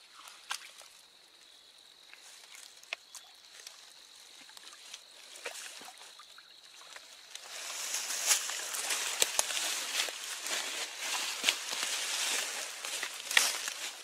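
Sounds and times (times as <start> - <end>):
creek water splashing: 0.0 - 14.0
wet leaves rustling: 6.8 - 14.0.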